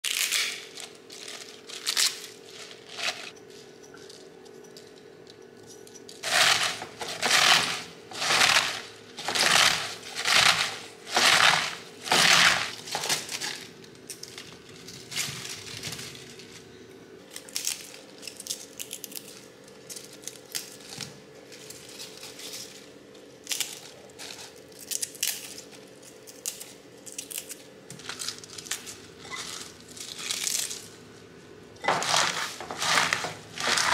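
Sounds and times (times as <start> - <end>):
leaves crunching by hand: 0.0 - 3.3, 6.2 - 13.7, 26.4 - 30.9, 31.8 - 33.9
faint steady hum: 0.1 - 33.9.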